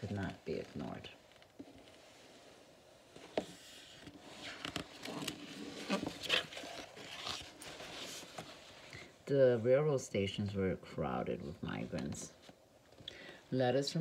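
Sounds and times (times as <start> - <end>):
book pages turning: 3.1 - 8.9.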